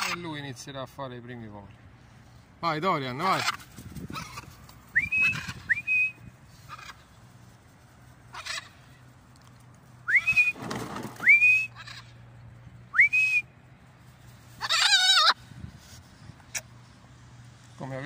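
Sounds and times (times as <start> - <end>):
macaw squawk: 0.0 - 0.4, 3.2 - 7.1, 8.3 - 9.0, 11.5 - 12.2, 14.6 - 15.4
short rising whistles: 4.9 - 6.3, 10.0 - 11.8, 12.9 - 13.5.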